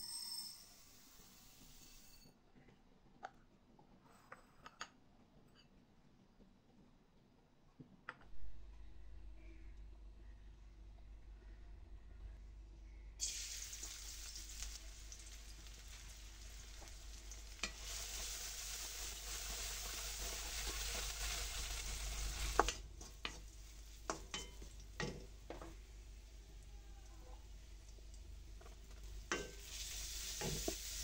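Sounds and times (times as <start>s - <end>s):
onions sizzling in hot oil: 13.2s - 26.7s, 27.5s - 31.0s.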